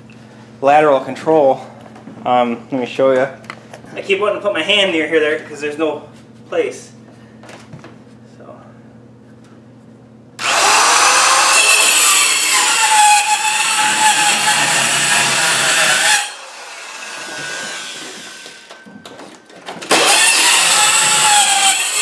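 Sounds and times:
circular saw cutting wood: 0:10.4 - 0:18.8, 0:19.9 - 0:22.0.

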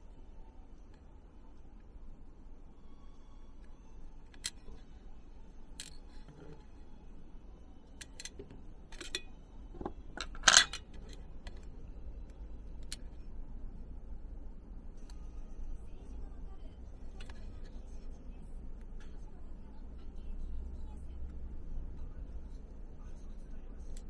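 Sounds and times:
tweezers clicking on metal tray: 0:07.9 - 0:11.7
ringing clink: 0:08.0 - 0:09.5.

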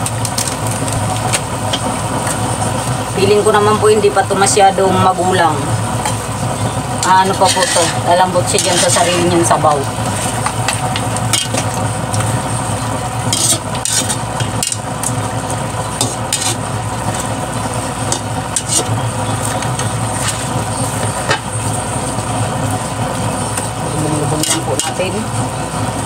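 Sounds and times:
chicken sizzling in a wok: 0:00.0 - 0:26.0
steady low hum: 0:00.0 - 0:26.0
metal spatula scraping a pan: 0:07.2 - 0:11.7, 0:13.2 - 0:14.8, 0:16.0 - 0:17.4, 0:18.0 - 0:21.0, 0:24.3 - 0:25.0.

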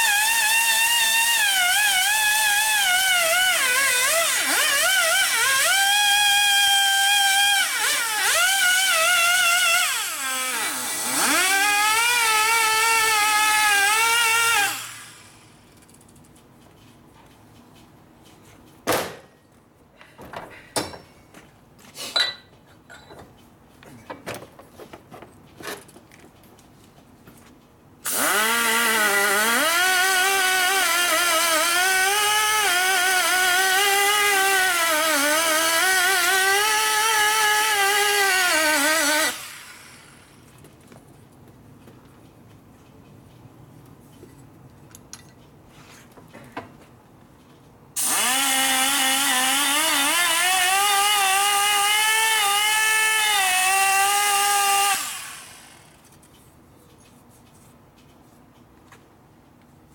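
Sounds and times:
rotary tool cutting metal: 0:00.0 - 0:16.1, 0:28.1 - 0:40.5, 0:48.0 - 0:56.3.

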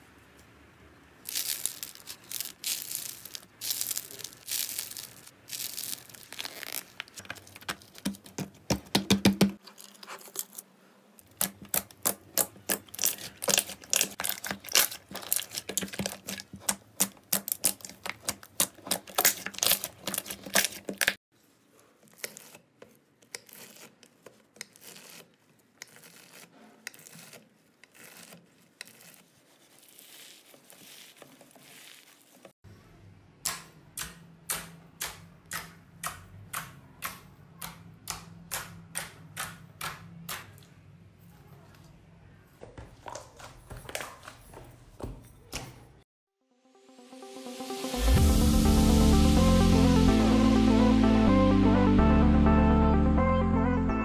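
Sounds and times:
hands squeezing slime: 0:01.3 - 0:08.1, 0:11.2 - 0:21.2, 0:25.9 - 0:32.5.

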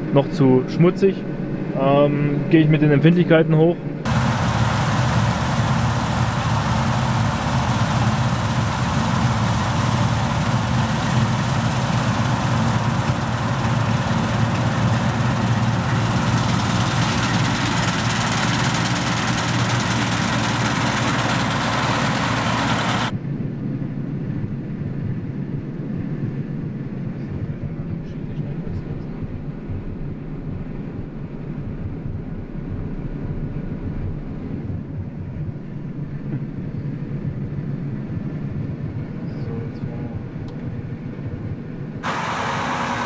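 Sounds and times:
combine harvester running: 0:04.1 - 0:23.1, 0:42.0 - 0:43.0
muffled machine heard from cab: 0:04.1 - 0:23.1, 0:24.4 - 0:43.0.

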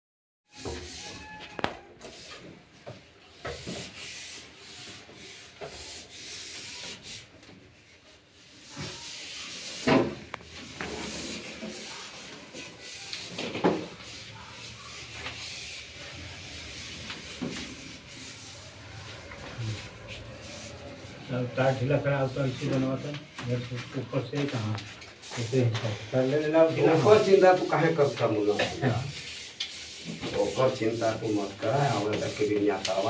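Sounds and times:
pipe and cable scraping: 0:08.6 - 0:33.0.

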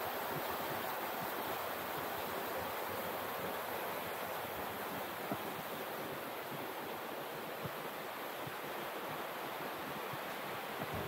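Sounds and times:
flowing water rushing: 0:00.0 - 0:11.0.

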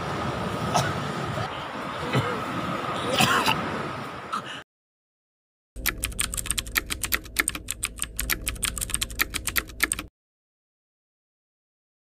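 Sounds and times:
keyboard typing clicks: 0:05.8 - 0:10.1.

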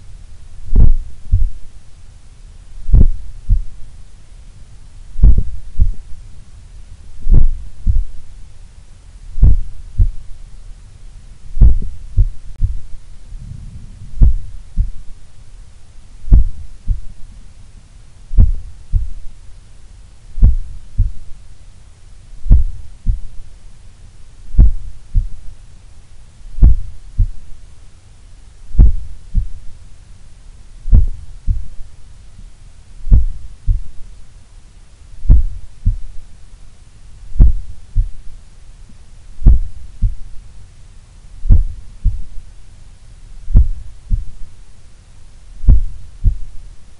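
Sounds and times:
faint low hum: 0:00.0 - 0:46.9
heartbeat through stethoscope: 0:00.6 - 0:01.7, 0:02.8 - 0:03.8, 0:05.2 - 0:06.2, 0:07.2 - 0:08.3, 0:09.3 - 0:10.4, 0:11.5 - 0:15.2, 0:16.2 - 0:17.3, 0:18.3 - 0:19.4, 0:20.4 - 0:21.4, 0:22.4 - 0:23.4, 0:24.5 - 0:25.6, 0:26.5 - 0:27.5, 0:28.7 - 0:29.8, 0:30.9 - 0:31.9, 0:33.0 - 0:34.1, 0:35.2 - 0:36.3, 0:37.4 - 0:38.4, 0:39.4 - 0:40.4, 0:41.4 - 0:42.5, 0:43.5 - 0:44.5, 0:45.6 - 0:46.6.

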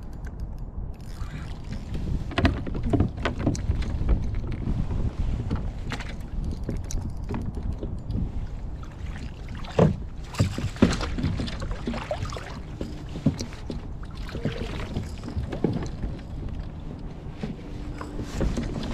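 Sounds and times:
wind rumble on microphone: 0:00.0 - 0:18.9
water lapping against plastic hull: 0:01.0 - 0:18.9
sharp knocks on hull: 0:09.6 - 0:16.1.

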